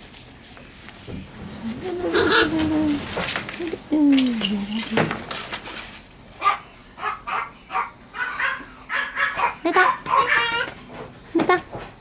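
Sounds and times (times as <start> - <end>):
newspaper crackling and rustling: 2.5 - 6.2.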